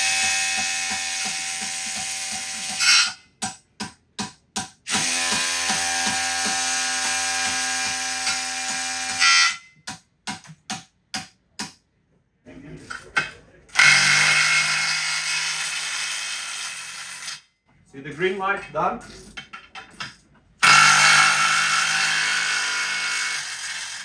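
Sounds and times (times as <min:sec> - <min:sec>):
impact wrench whining and ticking: 0:04.8 - 0:08.5, 0:20.6 - 0:24.0.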